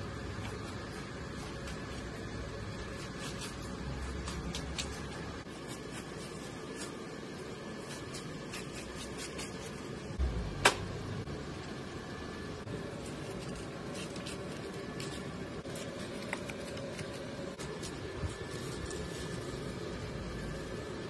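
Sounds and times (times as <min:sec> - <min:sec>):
knife cutting fish flesh: 0:02.8 - 0:07.0, 0:07.8 - 0:09.8.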